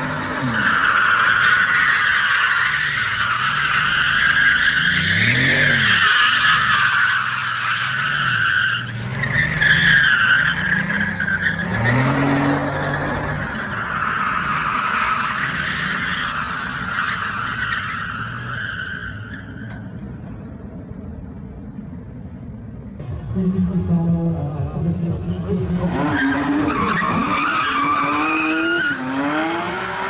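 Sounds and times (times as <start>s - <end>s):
car engine revving: 23.0s - 30.0s
tyre squeal: 25.9s - 30.0s.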